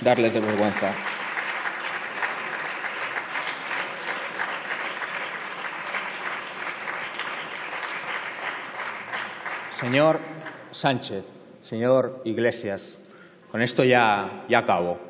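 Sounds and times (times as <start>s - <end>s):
crowd applauding: 0.0s - 10.8s.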